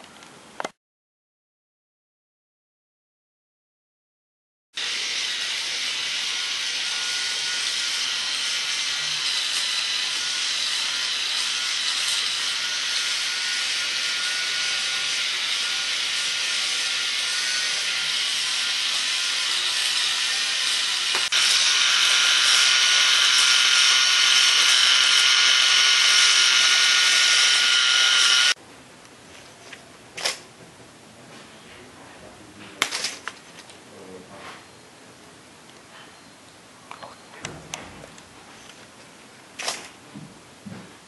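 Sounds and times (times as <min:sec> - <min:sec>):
toy motor whirring with high whine: 0:04.8 - 0:28.6.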